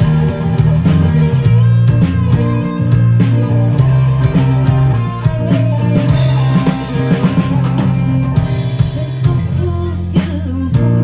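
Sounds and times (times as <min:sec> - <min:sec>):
bass guitar: 0:00.0 - 0:11.0
drum kit: 0:00.0 - 0:11.0
electric guitar: 0:00.0 - 0:11.0.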